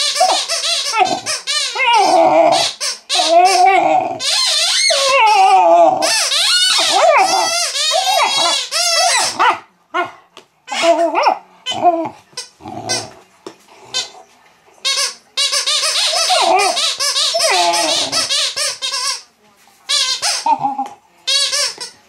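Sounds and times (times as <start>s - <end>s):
puppy squeaking: 0.0s - 9.6s, 14.9s - 19.2s
rubber squeaky toy squeaking: 0.0s - 9.6s, 10.7s - 13.2s, 14.8s - 19.3s, 19.9s - 21.9s.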